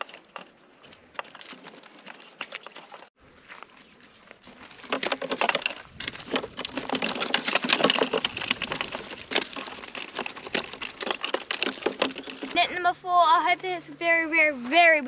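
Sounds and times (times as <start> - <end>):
crayfish clattering on mesh and plastic: 0.0 - 3.1, 4.7 - 12.6.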